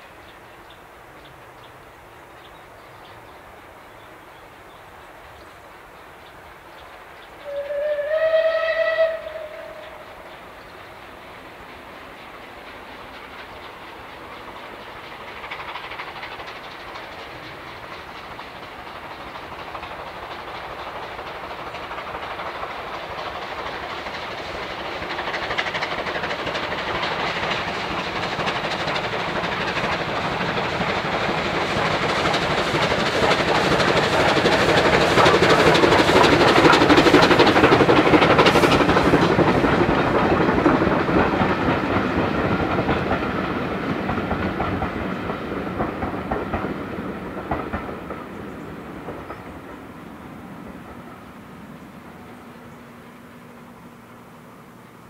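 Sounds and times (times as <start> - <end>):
steam locomotive chuffing: 0.0 - 55.0
coaches clickety-clack: 10.2 - 52.9.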